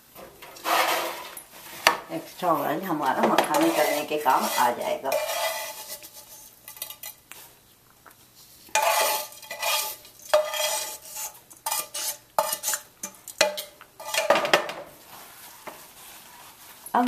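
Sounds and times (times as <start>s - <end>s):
metal spoon scraping a frying pan: 0.5s - 1.4s, 3.3s - 7.2s, 8.7s - 14.5s.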